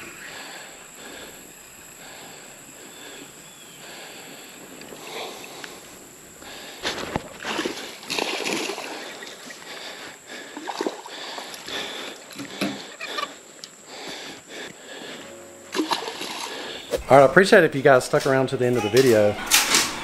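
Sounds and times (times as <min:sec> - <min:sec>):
water splashing around kayak: 0:06.8 - 0:11.7.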